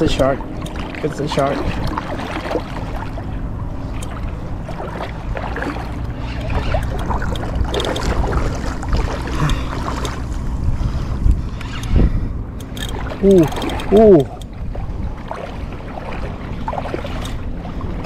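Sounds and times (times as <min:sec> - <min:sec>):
seawater sloshing and lapping: 0:00.0 - 0:18.0
wind buffeting microphone: 0:00.0 - 0:18.0.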